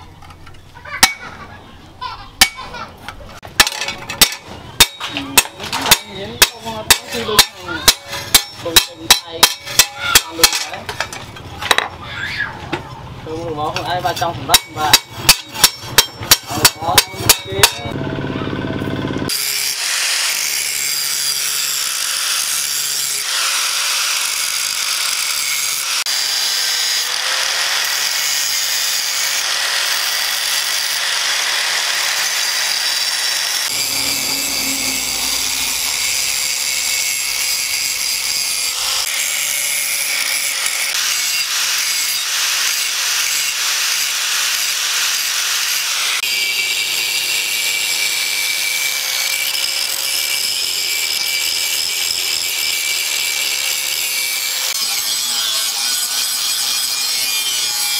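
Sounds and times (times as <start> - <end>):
hammer striking steel on anvil: 1.0 - 1.3, 2.4 - 2.7, 3.6 - 11.9, 14.5 - 18.0, 31.8 - 38.7
angle grinder grinding steel: 3.6 - 11.8, 13.3 - 18.0, 18.8 - 57.9.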